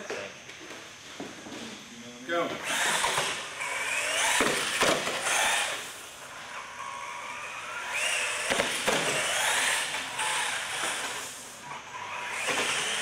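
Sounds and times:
toy truck electric motor whining: 2.6 - 13.0.

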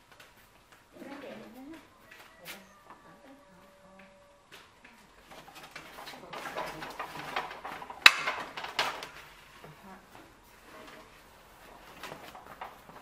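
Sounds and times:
bamboo dish rack knocking and creaking: 5.2 - 9.4
plates and metal tray clattering: 5.3 - 9.3.

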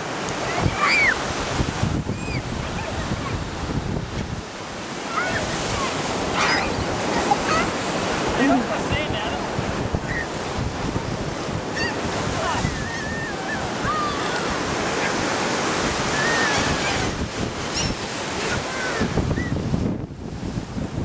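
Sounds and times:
surf washing on beach: 0.0 - 21.0
wind buffeting microphone: 0.0 - 21.0
birds calling: 9.4 - 10.6, 11.6 - 19.6.

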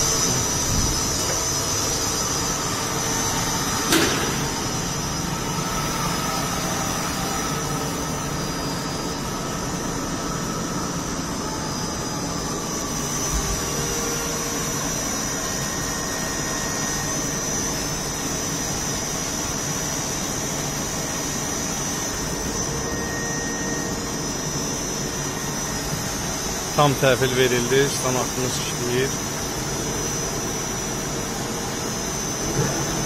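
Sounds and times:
lathe running with high whine: 0.0 - 33.0.

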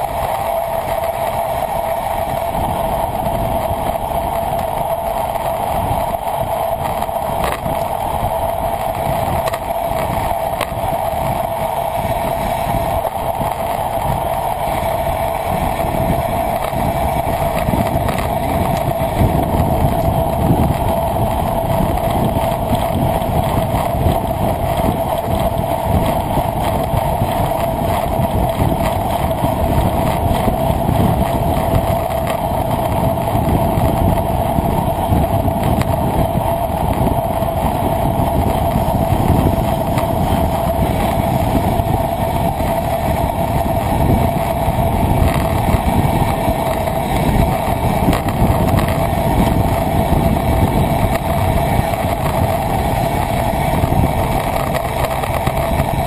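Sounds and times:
mid-pitched hum: 0.0 - 56.0
road noise: 0.0 - 56.0
wind noise: 0.0 - 56.0.

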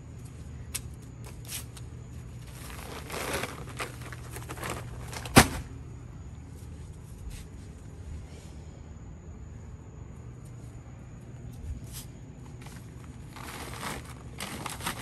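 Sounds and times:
steady low hum: 0.0 - 15.0
bags rustling: 2.4 - 5.7, 12.5 - 15.0.

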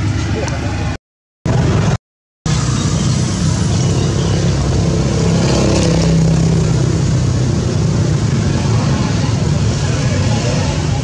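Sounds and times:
road noise: 0.0 - 11.0
vehicle engine hum: 0.0 - 11.0.

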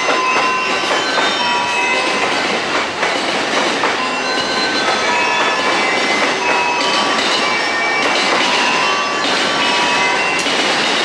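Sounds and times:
wheels clicking over rail joints: 0.0 - 11.0
train wheels squealing: 4.0 - 11.0.

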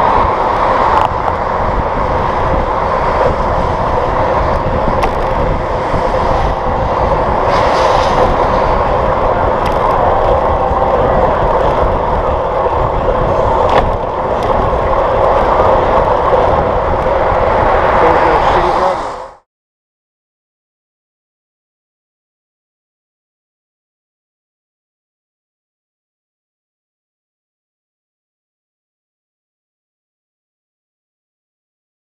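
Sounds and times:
low rumble: 0.0 - 19.4
wind and road noise: 0.0 - 19.5.

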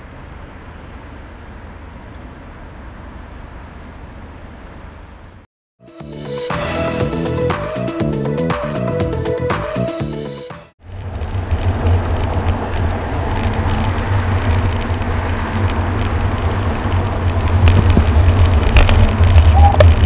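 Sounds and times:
road and traffic noise: 0.0 - 5.5, 10.3 - 20.0
wind buffeting microphone: 11.0 - 20.0.

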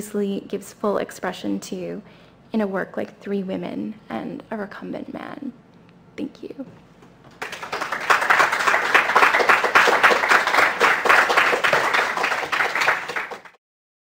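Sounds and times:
audience applauding: 7.3 - 13.6.

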